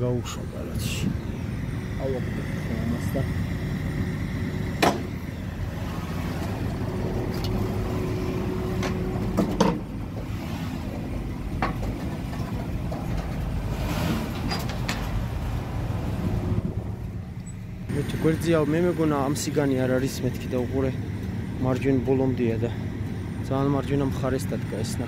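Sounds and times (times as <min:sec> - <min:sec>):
car engine at low revs: 0:00.0 - 0:25.0
metallic clunks of ramps: 0:04.8 - 0:05.2, 0:08.8 - 0:10.4.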